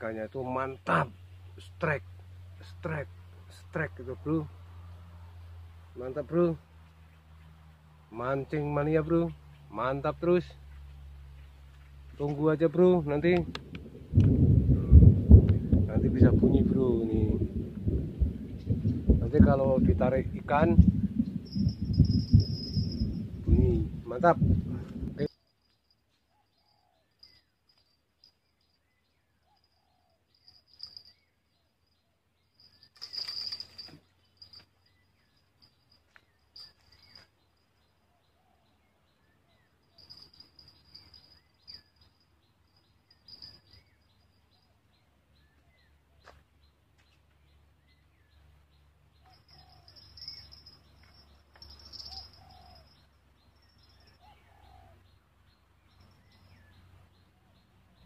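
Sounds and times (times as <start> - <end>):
birds chirping: 0.0 - 58.0
pulsing insect chirr: 20.4 - 24.0, 49.3 - 54.2.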